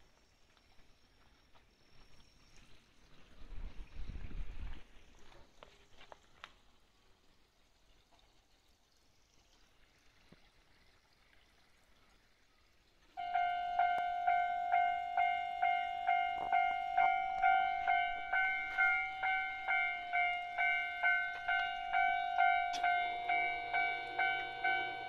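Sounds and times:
level crossing warning bell: 0:13.2 - 0:25.0.

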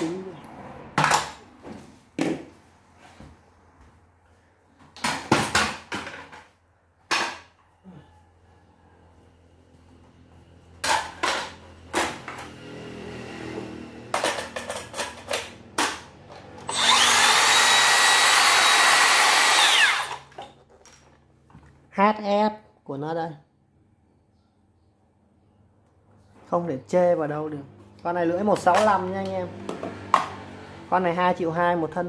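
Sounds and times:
circular saw motor whining: 0:16.7 - 0:20.2.

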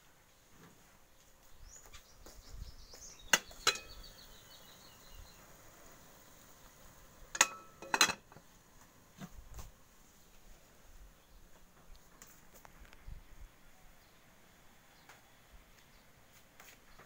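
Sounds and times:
metallic clinks of cooking pots: 0:03.3 - 0:04.0, 0:07.3 - 0:08.4.

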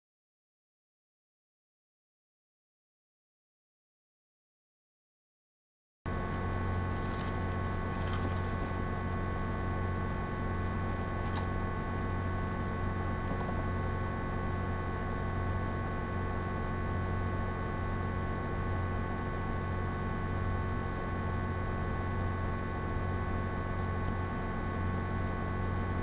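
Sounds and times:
electrical hum with whining tones: 0:06.1 - 0:26.0
leaves rustling: 0:06.2 - 0:08.9.

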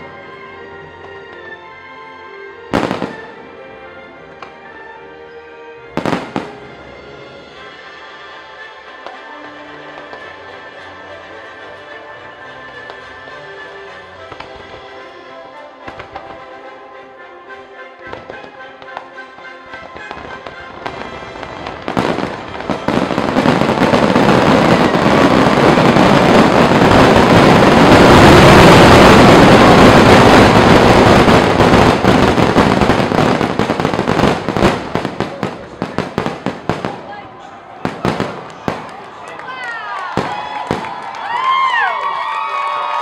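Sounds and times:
music: 0:00.0 - 0:43.0
fireworks barrage crackling rumble: 0:02.7 - 0:03.6, 0:06.0 - 0:13.2, 0:15.9 - 0:16.5, 0:18.0 - 0:41.9
fireworks popping: 0:15.9 - 0:16.4, 0:19.7 - 0:37.1.

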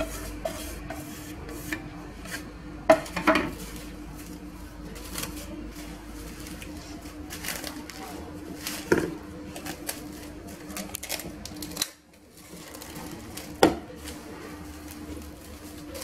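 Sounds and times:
plastic food wrap crinkling: 0:03.5 - 0:16.0.

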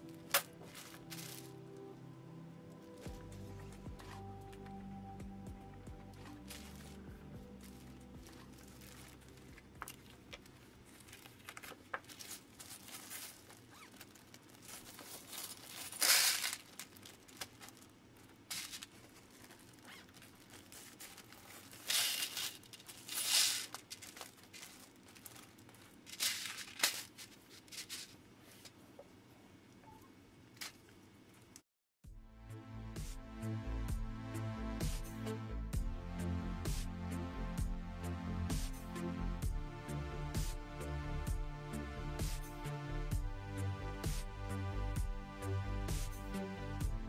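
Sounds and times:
plastic bags crinkling and tearing: 0:00.0 - 0:01.8, 0:06.1 - 0:28.2
plastic pieces rattling into trays: 0:11.0 - 0:17.8, 0:18.5 - 0:28.1.

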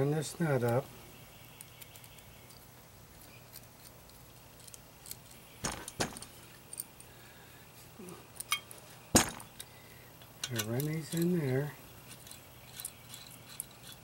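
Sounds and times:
small metal clicks and clinks: 0:01.6 - 0:07.1, 0:09.5 - 0:14.0.

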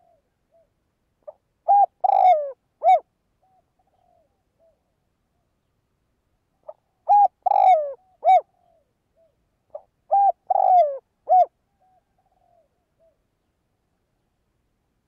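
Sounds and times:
dove cooing: 0:00.0 - 0:04.9, 0:06.6 - 0:13.2.

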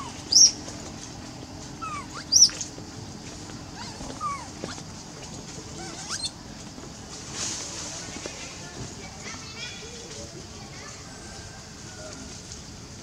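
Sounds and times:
baby monkeys squealing: 0:00.0 - 0:00.6, 0:01.8 - 0:02.7, 0:03.8 - 0:04.8, 0:05.8 - 0:06.4.

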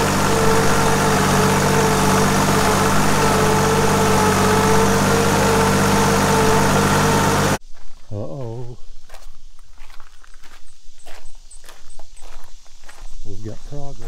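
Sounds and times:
trencher engine running: 0:00.0 - 0:07.6.

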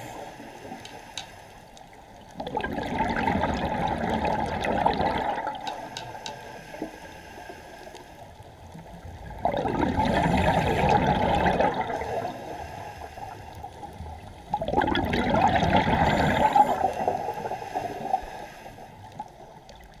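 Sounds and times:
underwater regulator bubbles: 0:02.2 - 0:06.4, 0:09.1 - 0:12.5, 0:13.8 - 0:18.4.

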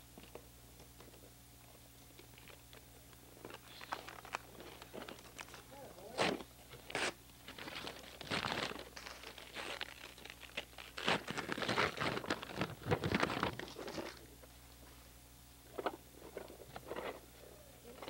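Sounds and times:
wrapping paper crinkling and tearing: 0:03.5 - 0:14.3.

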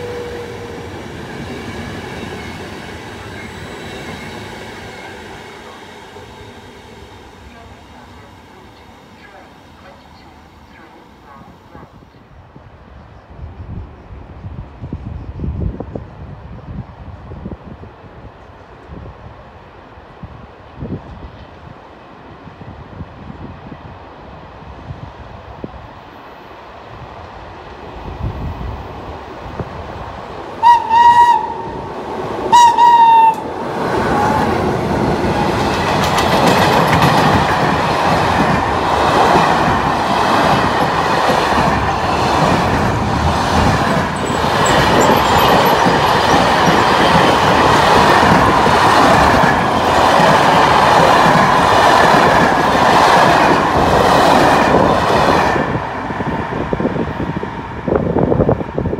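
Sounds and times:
locomotive horn blasts: 0:30.6 - 0:31.8, 0:32.5 - 0:33.5
train wheels rolling and rattling: 0:32.0 - 0:58.9.

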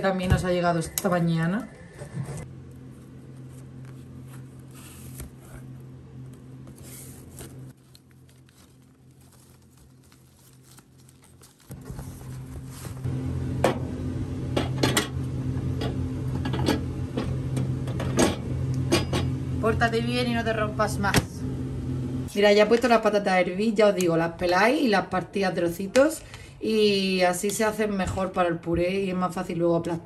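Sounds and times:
steady low hum: 0:00.0 - 0:28.0
cardboard packaging handled: 0:06.3 - 0:13.0.

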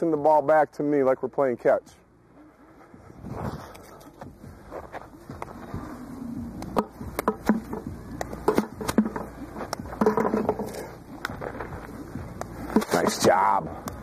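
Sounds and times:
softballs knocking into plastic bucket: 0:06.8 - 0:09.3, 0:09.9 - 0:10.8.

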